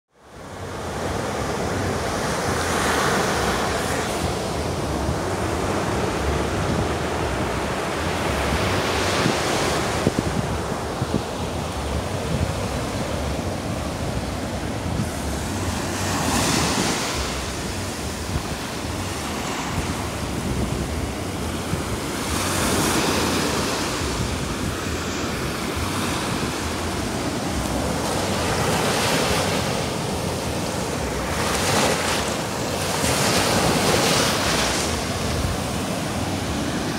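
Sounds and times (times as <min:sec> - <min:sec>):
sea waves breaking on sand: 0:00.4 - 0:36.9
wind buffeting microphone: 0:00.4 - 0:36.9.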